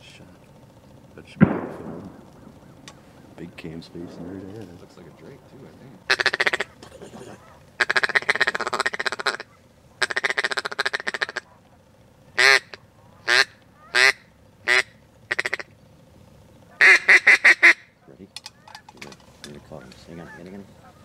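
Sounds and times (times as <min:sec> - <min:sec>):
duck call quacking: 0:06.1 - 0:11.5, 0:12.4 - 0:15.7, 0:16.7 - 0:17.9, 0:19.7 - 0:21.0.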